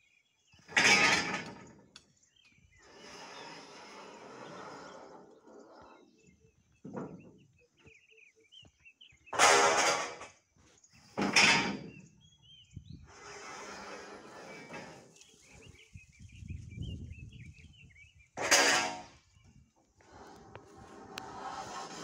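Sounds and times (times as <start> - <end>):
small birds chirping: 1.6 - 9.4, 14.4 - 18.4.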